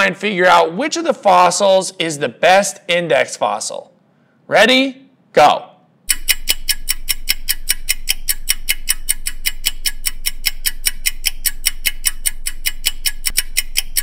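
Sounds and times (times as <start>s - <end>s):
fast clock ticking: 6.1s - 14.0s.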